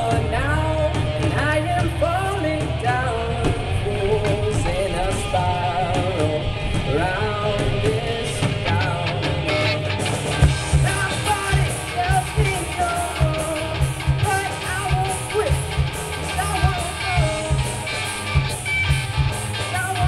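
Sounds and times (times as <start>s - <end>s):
electric guitars: 0.0s - 20.0s
drum kit beat: 7.6s - 20.0s.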